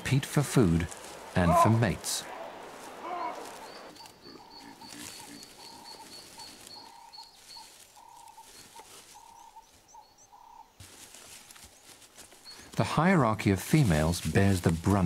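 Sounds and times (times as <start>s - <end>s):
faint outdoor ambience: 0.0s - 15.0s
bird whistling: 3.0s - 10.6s.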